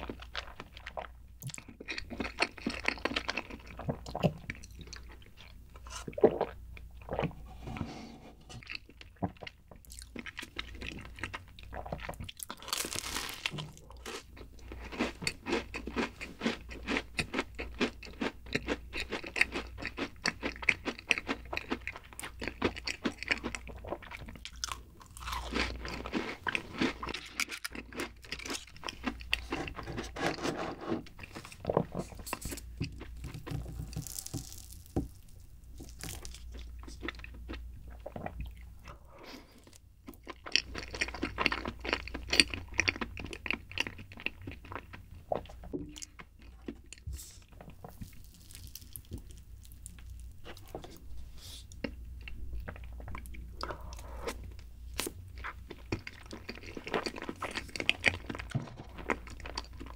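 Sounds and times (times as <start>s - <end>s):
soft chewing: 0.0s - 7.6s, 8.4s - 30.2s, 31.0s - 59.9s
crisp crunching of biting: 12.3s - 14.3s, 24.4s - 29.9s, 31.2s - 35.1s, 35.8s - 37.2s, 47.8s - 50.7s.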